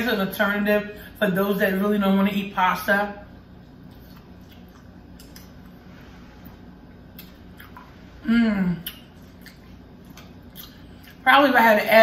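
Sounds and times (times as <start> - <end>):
wet chewing and mouth clicks: 3.8 - 5.8, 7.1 - 8.0, 8.8 - 11.2
woman humming mmm: 8.2 - 9.0.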